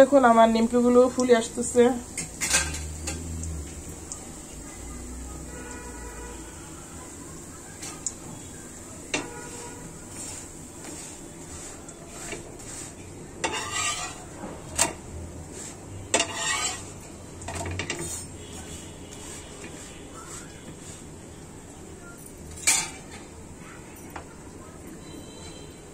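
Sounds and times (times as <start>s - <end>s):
food sizzling in hot oil: 0.0s - 21.5s
metal utensil scraping pan: 0.8s - 3.4s, 9.1s - 21.1s, 22.6s - 23.2s.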